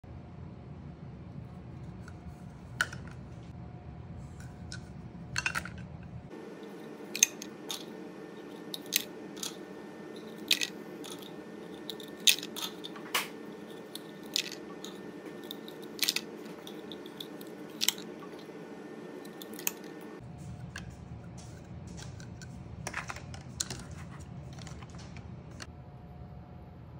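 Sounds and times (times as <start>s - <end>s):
low steady hum: 0.0s - 26.9s.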